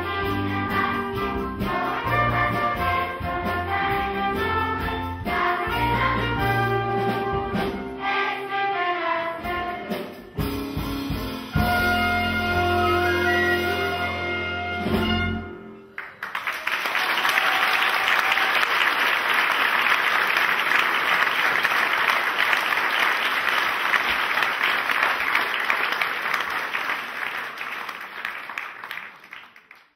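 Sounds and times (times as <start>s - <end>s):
audience applause: 15.9s - 29.9s.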